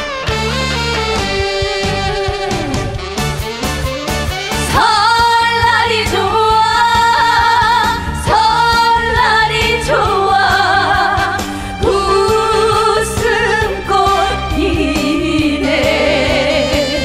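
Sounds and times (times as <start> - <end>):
band playing with steady beat: 0.0 - 17.0
woman singing into a microphone: 4.6 - 17.0.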